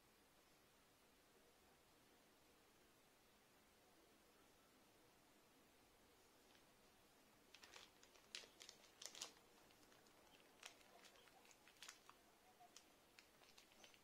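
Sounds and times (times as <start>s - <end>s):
plastic bag crinkling: 7.5s - 14.0s.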